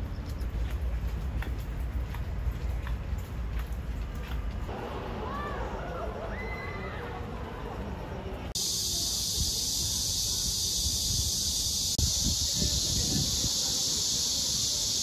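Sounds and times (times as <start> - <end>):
cicadas droning: 8.5 - 15.0.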